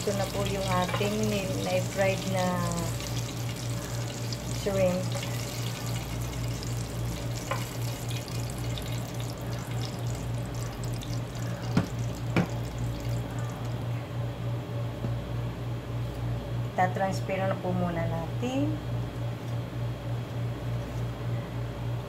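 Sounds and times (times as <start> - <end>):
oil sizzling and crackling: 0.0 - 13.8.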